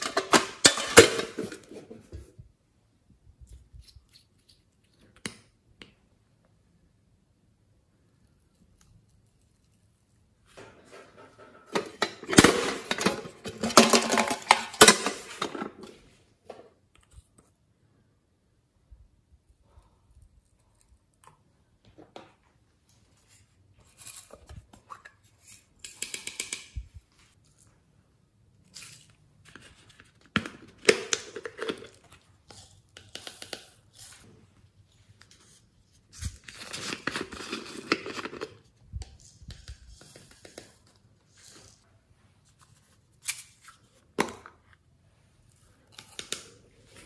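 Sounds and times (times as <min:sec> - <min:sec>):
plastic containers rustling and clicking: 0:00.0 - 0:02.3, 0:10.5 - 0:16.7, 0:29.0 - 0:33.9, 0:36.4 - 0:39.2.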